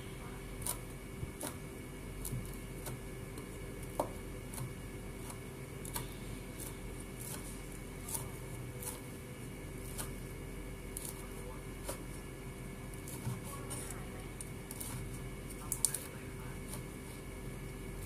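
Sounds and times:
steady hum: 0.0s - 18.0s
cleaver chopping on wooden board: 3.9s - 4.7s.

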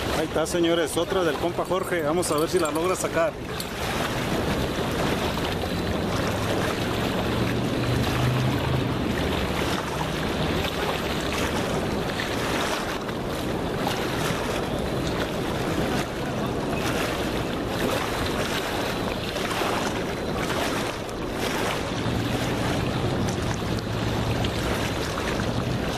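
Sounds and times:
river water washing against rocks: 0.0s - 25.9s
wind on microphone: 0.0s - 25.9s.

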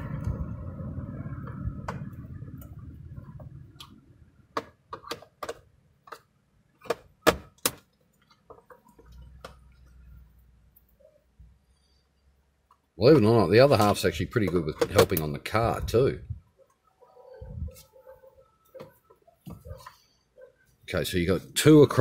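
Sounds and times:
low rumble: 0.0s - 4.5s.

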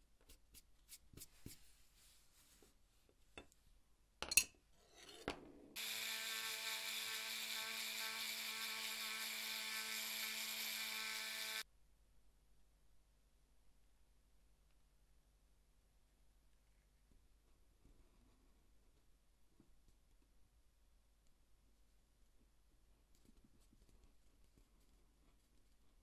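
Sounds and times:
rotary tool sanding leather: 5.8s - 11.6s.

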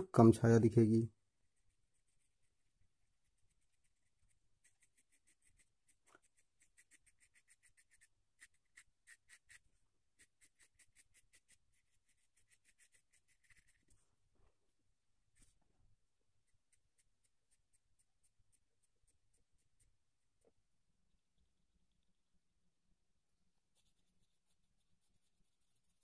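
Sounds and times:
pencil scratching on paper: 1.3s - 14.0s, 16.4s - 20.2s, 22.7s - 26.0s.

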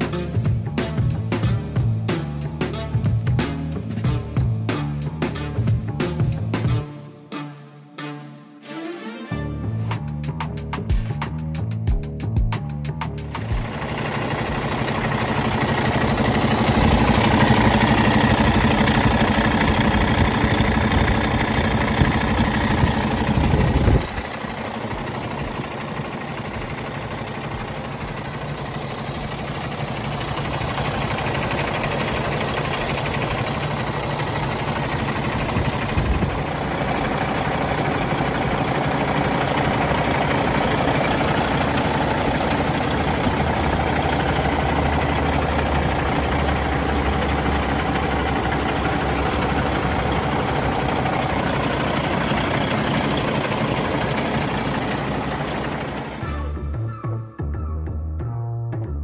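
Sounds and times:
diesel truck engine idling: 12.8s - 56.7s.

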